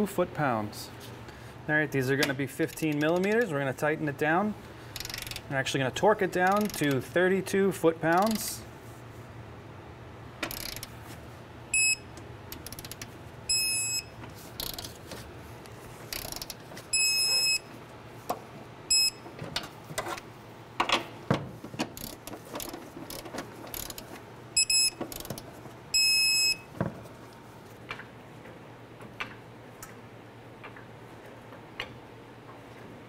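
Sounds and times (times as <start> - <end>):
torque wrench ratcheting: 5.0 - 5.5, 6.5 - 7.0, 10.4 - 10.9, 12.5 - 13.1, 14.6 - 14.9, 16.1 - 16.6, 22.0 - 24.0
high electronic beeps: 11.8 - 12.0, 26.0 - 26.6.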